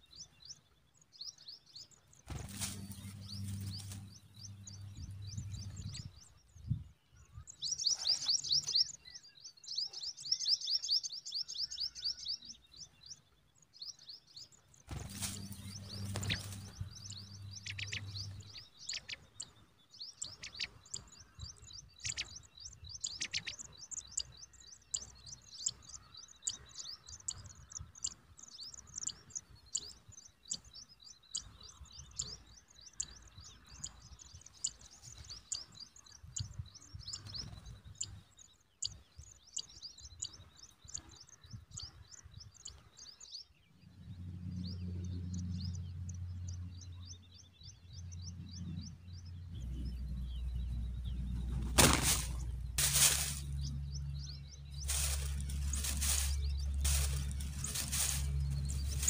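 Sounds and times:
nestlings chirping: 2.2 - 6.4, 14.8 - 38.2, 50.4 - 59.0
low rumble: 2.3 - 6.9, 14.9 - 18.8, 47.9 - 59.0.

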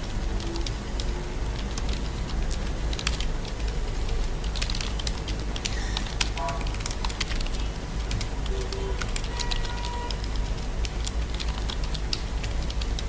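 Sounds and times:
keyboard typing: 0.4 - 10.4.

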